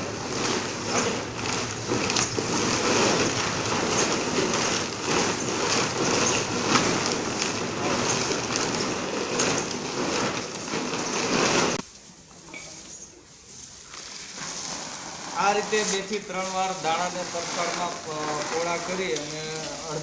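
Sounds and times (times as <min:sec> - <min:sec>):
plastic rustling: 0:00.0 - 0:20.0
seeds rattling in plastic sack: 0:00.0 - 0:20.0.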